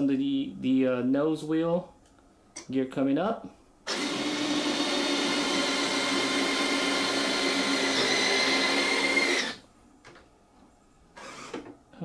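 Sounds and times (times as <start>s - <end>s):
electric motor whine: 3.9s - 9.6s.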